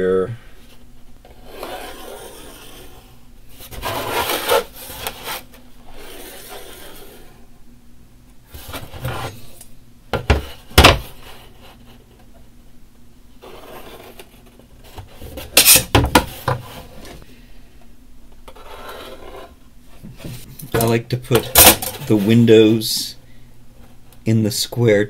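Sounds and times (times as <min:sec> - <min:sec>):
pencil scratching along ruler: 0:01.4 - 0:03.1, 0:03.7 - 0:07.3, 0:18.5 - 0:19.6
ruler sliding on board: 0:01.4 - 0:07.3.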